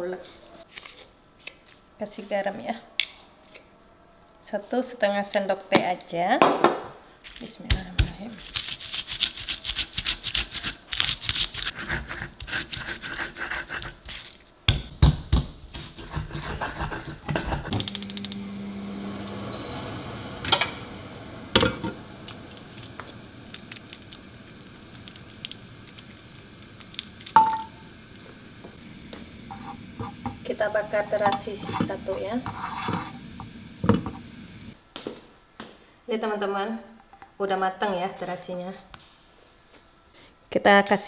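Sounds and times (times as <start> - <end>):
stone pestle grinding in mortar: 15.7 - 17.7
gas burner hissing: 17.6 - 34.8, 39.0 - 40.2.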